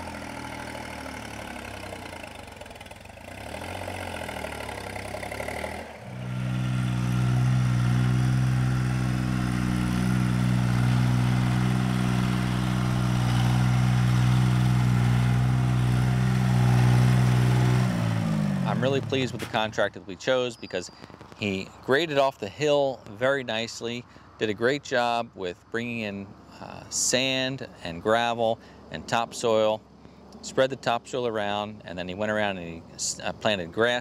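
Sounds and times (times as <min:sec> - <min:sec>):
tractor engine running: 0:00.0 - 0:19.9.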